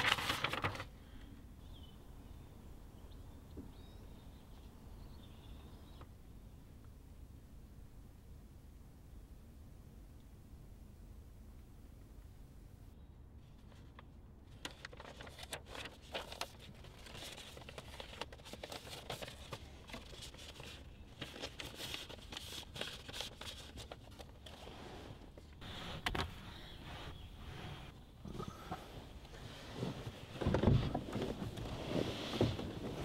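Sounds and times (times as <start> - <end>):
paper rustling and crinkling: 0.0 - 1.0, 13.6 - 26.3.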